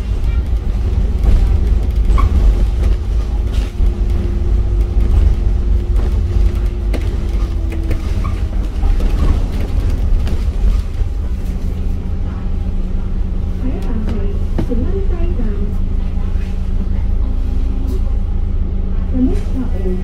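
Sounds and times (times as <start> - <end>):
rattles and knocks: 0.0 - 12.5
bus engine rumble: 0.0 - 20.0.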